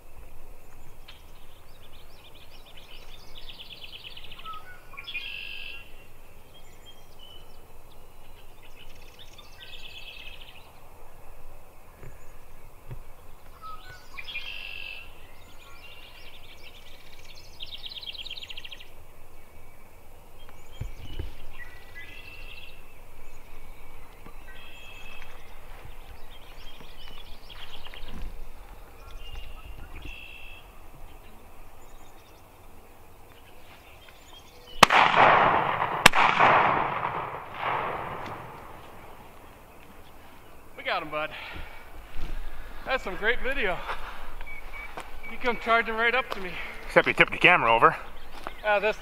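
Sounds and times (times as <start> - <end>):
songbird trilling: 0.8 - 10.8, 13.2 - 19.8, 20.4 - 34.9, 42.4 - 49.0.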